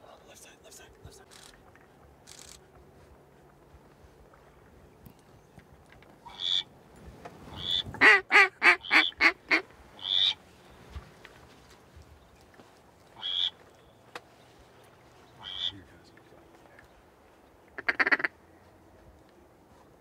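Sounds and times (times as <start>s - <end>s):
duck quacking: 6.2s - 6.7s, 7.6s - 10.4s, 13.2s - 13.6s, 15.4s - 15.8s, 17.8s - 18.3s.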